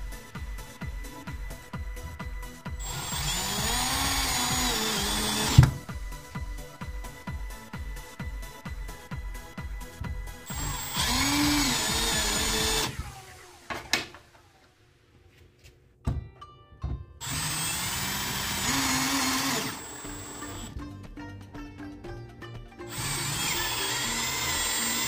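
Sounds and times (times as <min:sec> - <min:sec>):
cordless drill driving screws: 0:02.8 - 0:05.8, 0:10.5 - 0:13.4, 0:17.2 - 0:20.7, 0:22.9 - 0:25.0.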